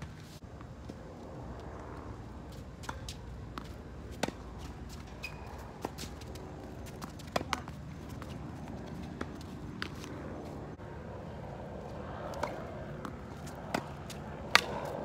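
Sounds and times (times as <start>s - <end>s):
tennis ball bouncing: 2.4s - 10.6s, 12.3s - 15.0s
racket striking tennis ball: 2.7s - 10.1s, 12.4s - 15.0s
shoe squeak on court: 5.1s - 5.7s.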